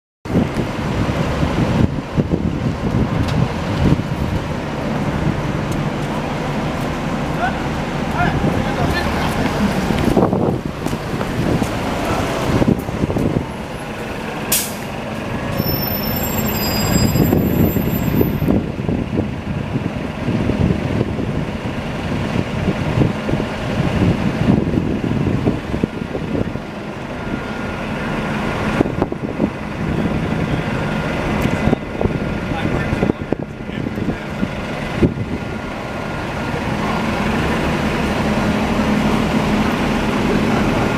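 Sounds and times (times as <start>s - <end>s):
city traffic rumble: 0.2s - 40.9s
buses idling: 0.3s - 40.9s
sharp air hiss: 14.5s - 14.9s.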